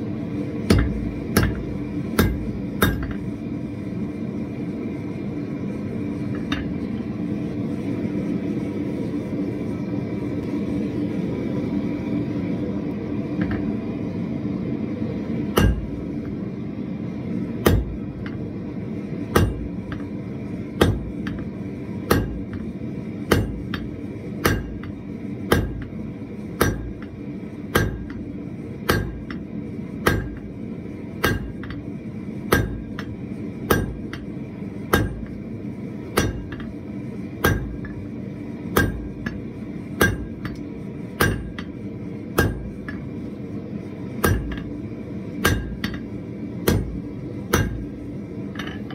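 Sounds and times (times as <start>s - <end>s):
hammer striking hot metal on anvil: 0.6s - 3.4s, 6.2s - 6.9s, 15.5s - 16.4s, 17.6s - 18.5s, 19.2s - 35.4s, 36.0s - 43.2s, 44.1s - 48.9s.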